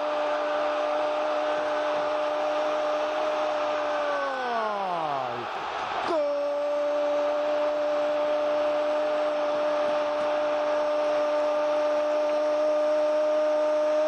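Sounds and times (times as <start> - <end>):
stadium crowd noise: 0.0 - 14.0
commentator shouting goal: 2.6 - 9.0.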